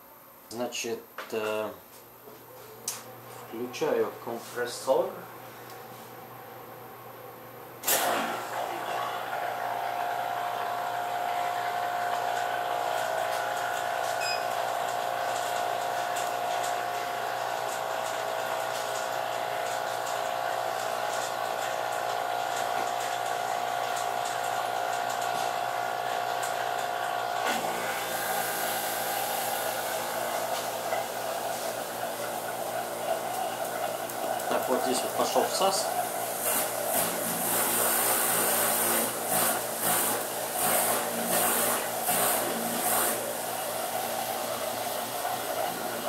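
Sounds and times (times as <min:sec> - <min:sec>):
refrigerator compressor humming: 0:00.0 - 0:46.0.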